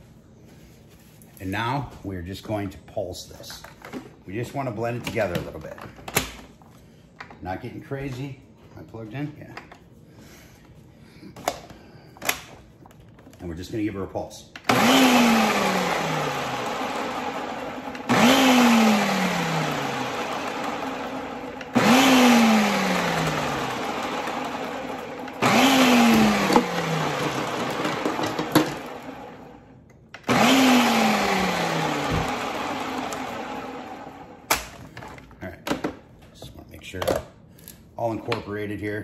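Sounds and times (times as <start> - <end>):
food processor motor and blades: 14.7 - 34.6.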